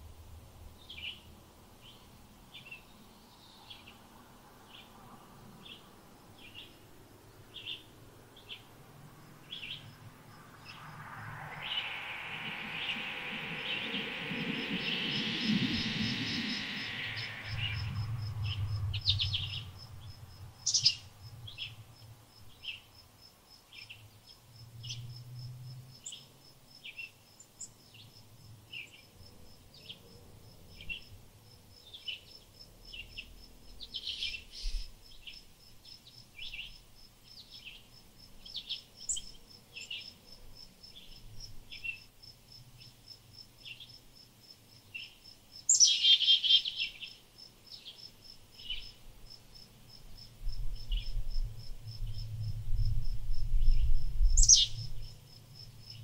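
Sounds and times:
songbirds chirping: 0.6 - 23.0, 44.8 - 49.0, 53.7 - 55.0
high-pitched insect trill: 9.2 - 21.7, 45.0 - 56.0.

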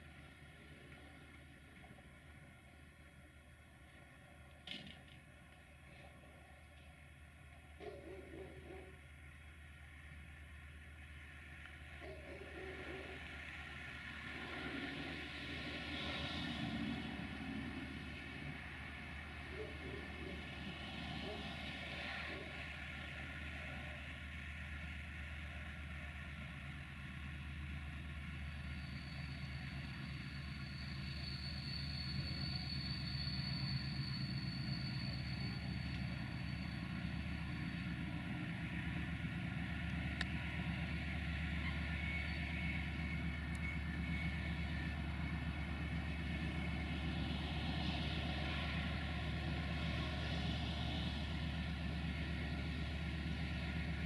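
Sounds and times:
diesel locomotive idling: 0.0 - 54.0
thin high whine: 28.4 - 54.0.

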